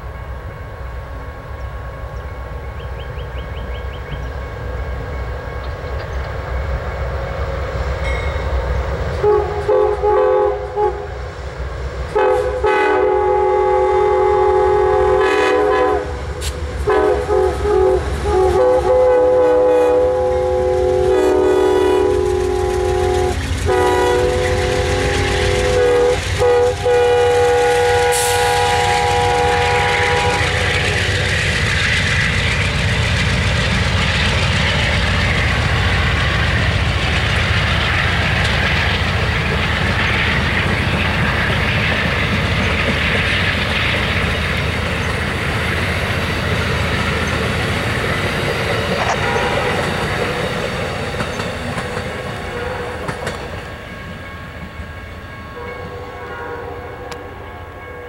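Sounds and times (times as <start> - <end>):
train wheels clattering on rails: 1.5 - 10.1, 15.2 - 18.7, 20.6 - 55.0
locomotive air horn blasts: 9.2 - 11.2, 12.1 - 31.1, 49.0 - 50.0, 55.5 - 58.0.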